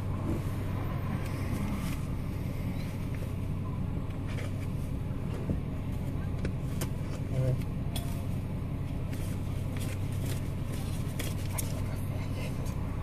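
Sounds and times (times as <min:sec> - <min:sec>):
car engine idling: 0:00.0 - 0:13.0
faint clicks and rustles: 0:04.0 - 0:12.8.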